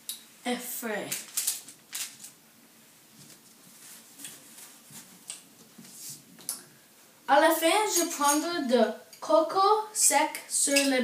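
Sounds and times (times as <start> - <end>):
paper rustle: 1.1 - 2.4.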